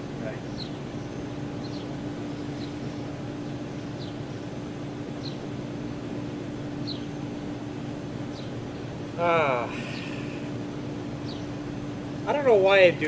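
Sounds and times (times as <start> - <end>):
low motor hum: 0.0 - 13.0
small bird chirps: 0.3 - 4.5, 5.1 - 5.5, 6.8 - 7.2, 8.2 - 8.8, 11.2 - 11.7
even hiss: 9.1 - 10.8.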